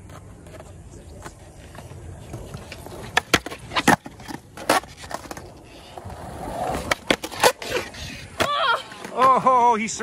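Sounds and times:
skateboard clacks: 0.0 - 5.5
skateboard wheels rolling on concrete: 0.0 - 10.0.

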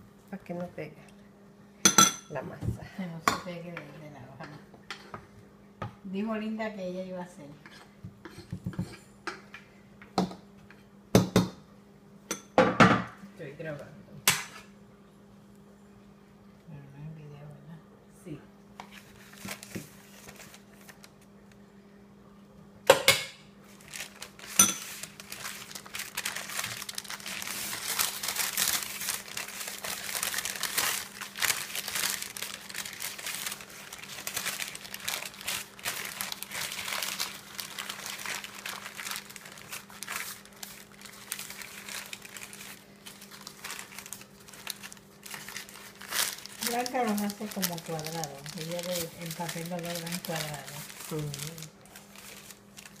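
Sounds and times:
wrapping paper crinkling: 18.8 - 21.4, 23.6 - 53.0.

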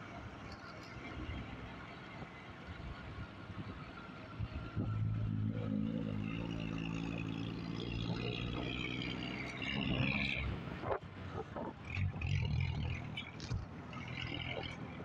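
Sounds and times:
rising engine or tyre whine: 0.0 - 15.0
rush of traffic: 0.0 - 15.0
vehicle engine running: 0.0 - 15.0.

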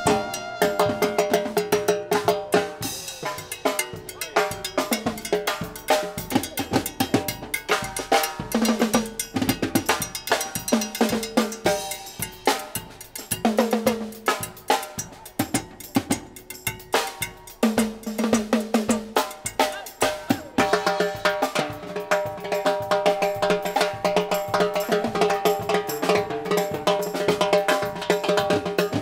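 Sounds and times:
drum break on timbales: 0.0 - 29.0.

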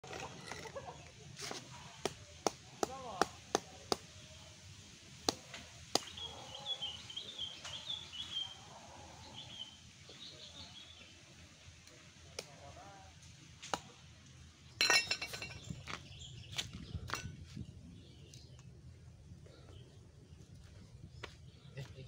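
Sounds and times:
machete knocking fruit husks: 2.0 - 4.1
birds chirping: 5.4 - 12.9, 13.8 - 22.0
clattering: 14.8 - 15.7.

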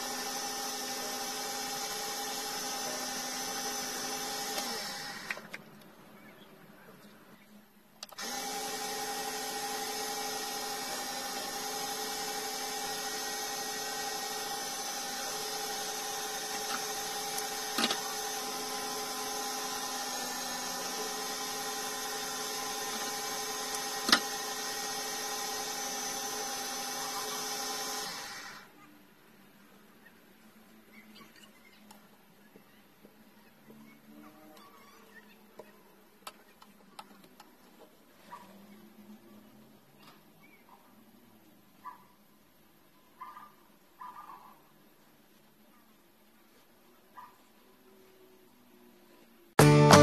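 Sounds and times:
lathe motor humming: 0.0 - 5.4, 8.2 - 28.6
sharp clicks: 8.0 - 8.4.

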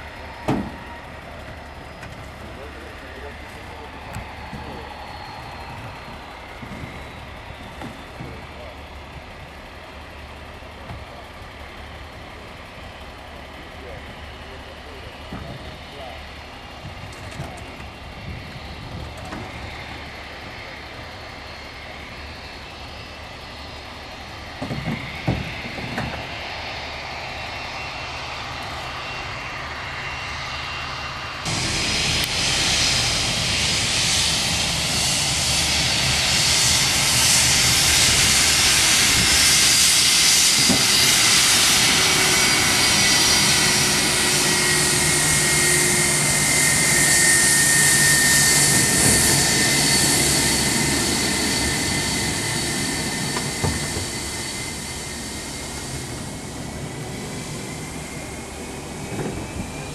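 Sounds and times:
loud rushing jet noise: 0.0 - 10.3, 15.6 - 59.9
jet engine hum with whine: 0.0 - 59.9.

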